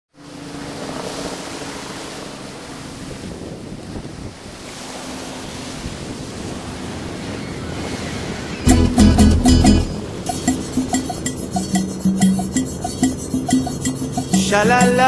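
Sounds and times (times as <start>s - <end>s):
helicopter flight noise: 0.2s - 15.0s
rushing wind: 0.8s - 14.6s
music with percussion: 8.7s - 15.0s.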